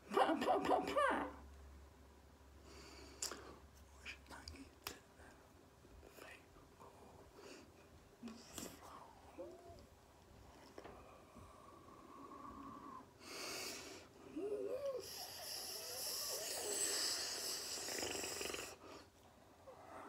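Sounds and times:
snorts: 14.4s - 19.1s
man hissing breathy noises: 15.0s - 19.1s.

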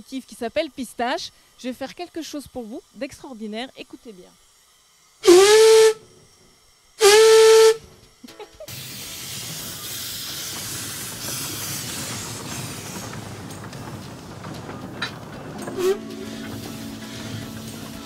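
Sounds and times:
steam train running on track: 0.0s - 6.0s, 6.6s - 18.0s
steam locomotive whistle: 5.2s - 6.1s, 7.0s - 7.9s, 15.7s - 18.0s.

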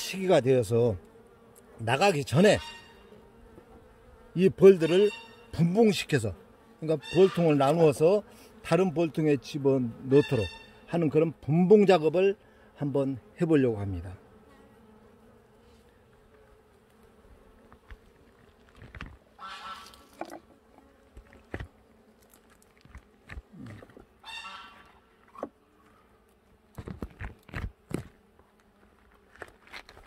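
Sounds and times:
raspy buzzing bursts: 0.0s - 25.2s
bees humming: 0.0s - 30.0s
knocks and rustles: 17.8s - 19.2s, 26.8s - 28.2s.

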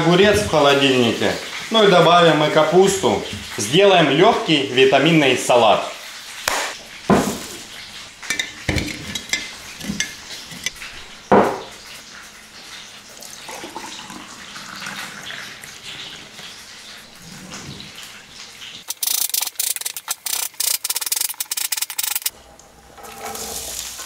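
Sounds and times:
glass and dishes clinking: 8.2s - 11.7s
juice pouring into glass: 13.2s - 15.3s.

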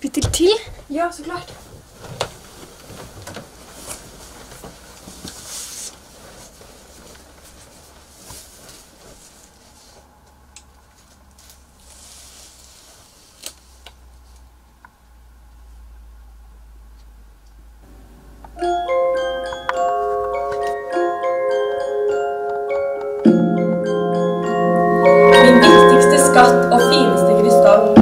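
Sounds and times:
bedding and clothes rustling: 0.0s - 14.7s, 19.0s - 28.0s
handling of a large book: 1.5s - 14.5s.

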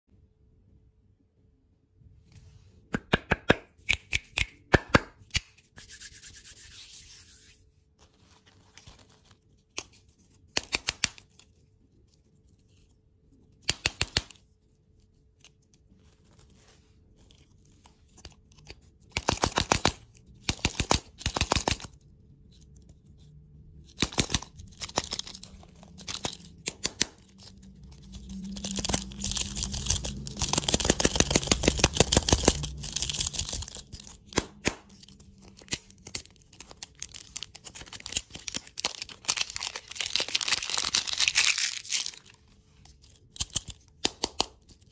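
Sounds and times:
fingers tapping plastic wrappers: 9.6s - 11.4s, 13.5s - 14.4s, 18.1s - 22.0s, 23.9s - 42.2s, 43.2s - 44.8s
plastic wrappers rustling: 24.4s - 34.3s, 34.9s - 43.4s.

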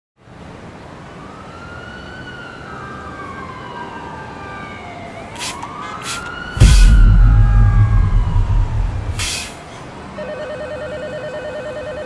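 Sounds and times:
siren wailing: 3.3s - 9.2s
low rumble: 6.6s - 9.4s.

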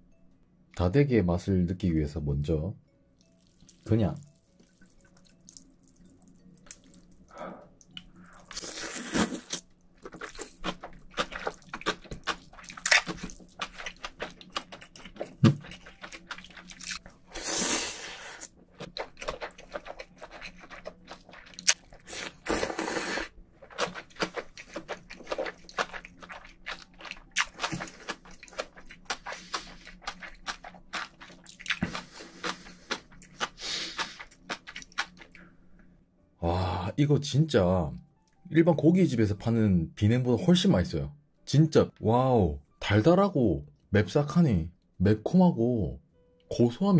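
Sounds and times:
wet chewing and lip smacks: 4.6s - 7.2s, 23.7s - 35.4s
noodle slurping: 19.4s - 26.4s.

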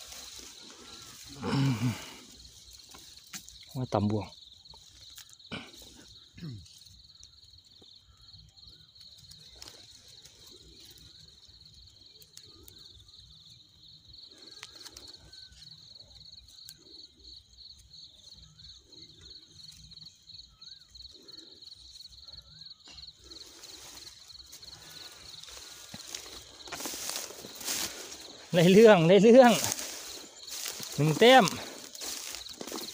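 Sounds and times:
dry grass rustling: 0.0s - 3.8s, 4.4s - 32.9s
high insect trill: 0.0s - 32.9s
sharp clicks from handling grass: 24.0s - 28.8s, 29.4s - 32.9s.

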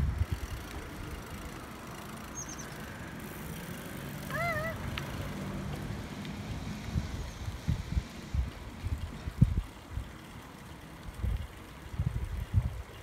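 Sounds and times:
wind buffeting microphone: 0.0s - 1.5s, 6.7s - 10.2s, 11.0s - 13.0s
motor vehicle hum: 0.0s - 11.5s
bird chirp: 2.3s - 2.8s
wavering animal call: 4.3s - 4.8s.

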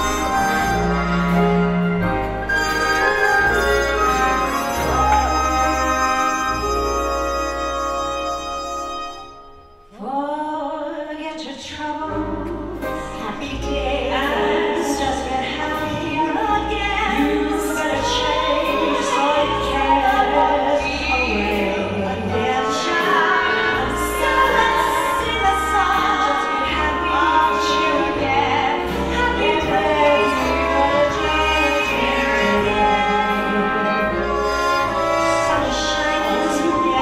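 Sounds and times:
bass line: 0.0s - 9.2s, 12.1s - 37.0s
live band playing: 0.0s - 9.9s, 12.3s - 37.0s
women singing a duet: 9.9s - 37.0s.

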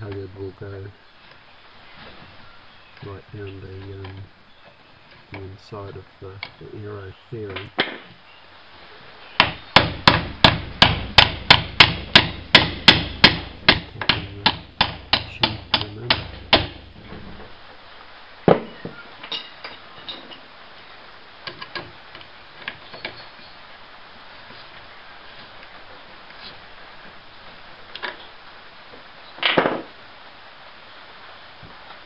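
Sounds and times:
hammer tapping on metal latch: 9.4s - 16.8s
sharp knock: 9.4s - 17.4s.

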